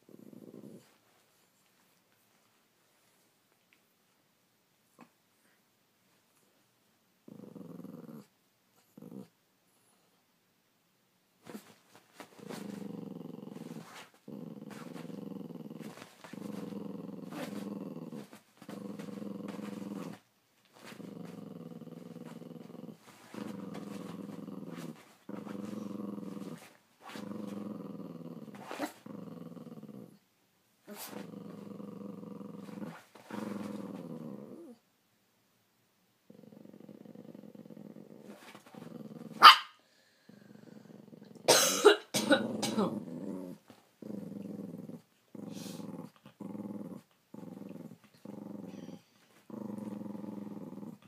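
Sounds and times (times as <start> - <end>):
small dog growling: 0.0 - 1.0, 7.2 - 9.4, 11.4 - 30.2, 30.9 - 34.8, 36.3 - 39.6, 40.2 - 41.5, 42.2 - 51.0.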